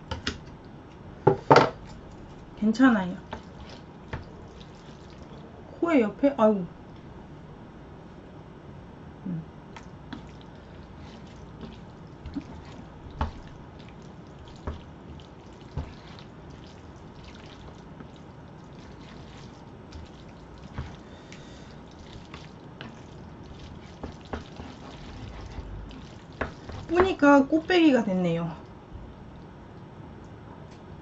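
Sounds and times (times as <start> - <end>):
chewing and slurping noodles: 3.3 - 5.4, 9.8 - 26.9.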